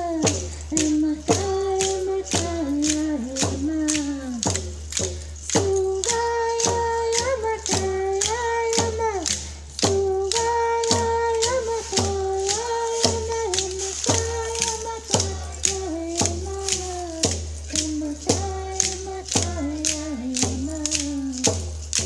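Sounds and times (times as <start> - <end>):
steady struck beat: 0.0 - 22.0
voices singing held notes: 0.0 - 22.0.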